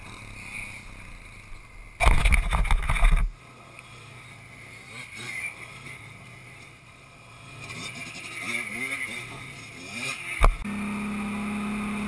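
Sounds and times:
distant quad engine revving: 0.0 - 12.0
quad engine burst: 7.3 - 12.0.

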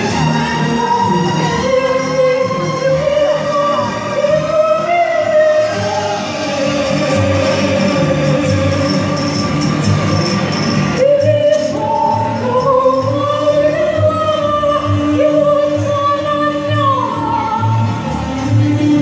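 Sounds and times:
person singing long held notes: 0.6 - 9.6
music with steady beat: 6.6 - 15.9.

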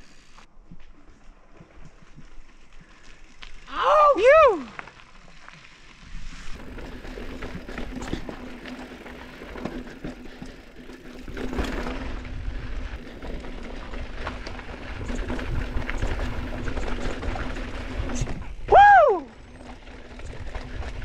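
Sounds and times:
tyres rolling over dirt and rocks: 4.6 - 21.0
bike clicks and rattles: 4.8 - 21.0
wind rumbling on microphone: 11.3 - 21.0.

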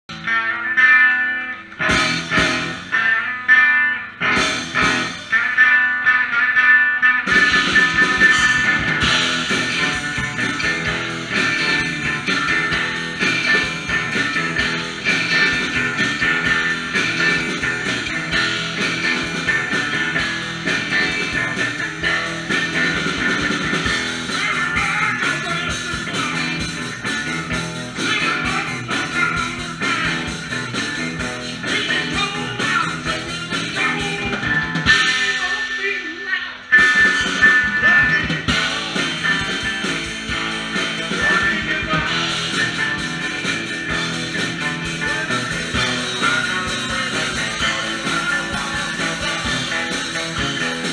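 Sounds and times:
guitar riff: 0.1 - 50.9
live rock band playing: 0.1 - 50.9.

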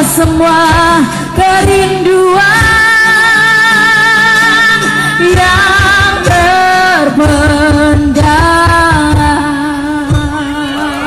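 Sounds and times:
band playing slow pop ballad: 0.0 - 11.0
woman singing: 0.0 - 11.0.

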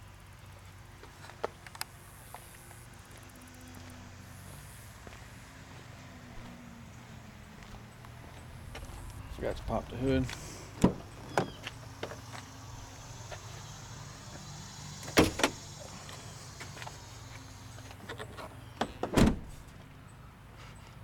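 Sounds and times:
hood release clunk: 10.7 - 12.2, 15.0 - 15.9
car door slamming: 10.7 - 12.3, 15.0 - 15.9, 18.8 - 19.7.

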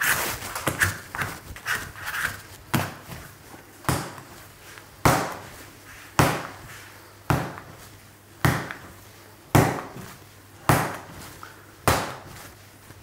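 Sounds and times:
dough slapping on wooden bench: 2.2 - 12.6.

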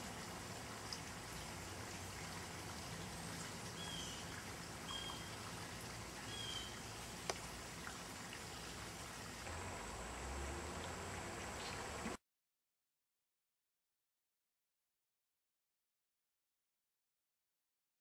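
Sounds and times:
steady outdoor hiss: 0.0 - 12.2.

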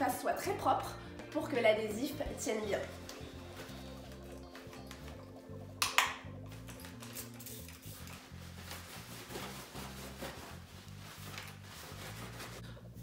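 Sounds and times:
soft music with bass line: 0.0 - 13.0.

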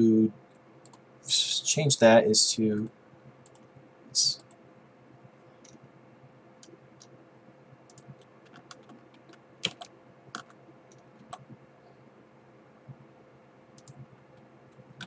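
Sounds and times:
steady hum: 0.0 - 15.0
keyboard and mouse clicks: 2.8 - 3.7, 6.6 - 7.2, 7.9 - 11.6, 13.8 - 15.0.

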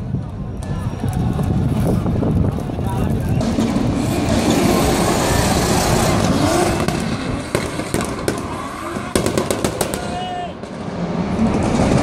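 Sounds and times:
car engine revving high: 3.4 - 9.2.

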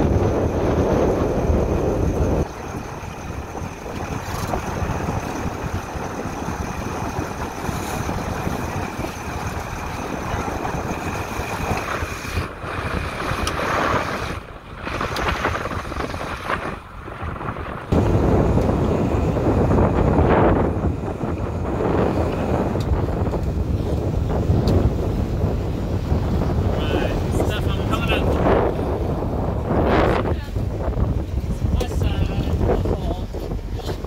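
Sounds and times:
sea wash: 0.0 - 34.0
wind buffeting the microphone: 0.0 - 34.0.

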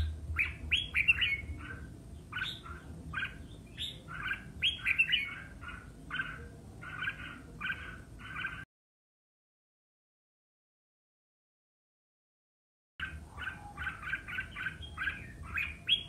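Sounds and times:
bulbul singing: 0.0 - 8.6, 13.0 - 16.0.

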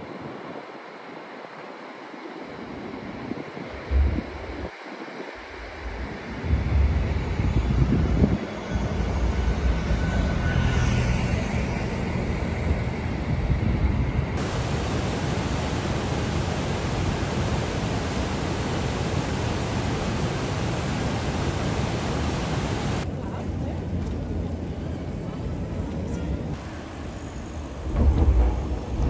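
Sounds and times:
water rushing over weir: 14.4 - 23.1.

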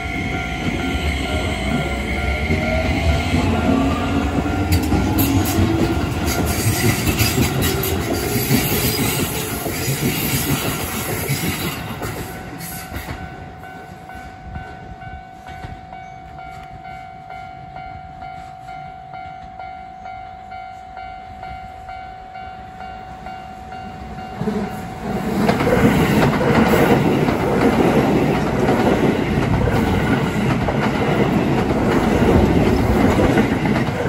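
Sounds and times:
level crossing alarm ringing: 0.0 - 10.0
electric train passing: 0.0 - 34.0
train whine: 0.0 - 34.0.

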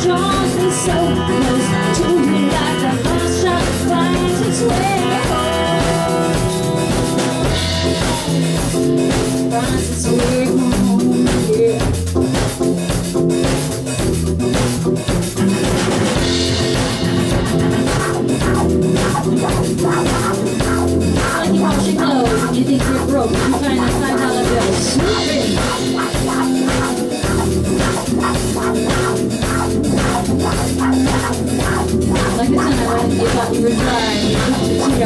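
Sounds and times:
drum kit: 0.0 - 35.0
electric bass: 0.0 - 35.0
acoustic guitar: 14.0 - 35.0.

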